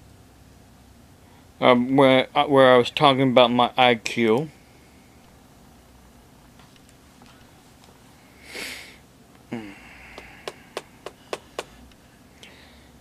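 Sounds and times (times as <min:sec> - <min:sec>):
man sniffing: 0:08.4 - 0:11.8.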